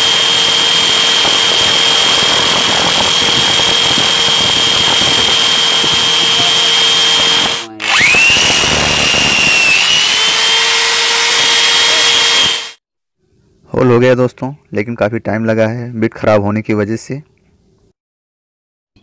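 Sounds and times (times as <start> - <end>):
drill bit grinding into steel: 0.0 - 12.8
hammer drill whining: 0.0 - 12.8.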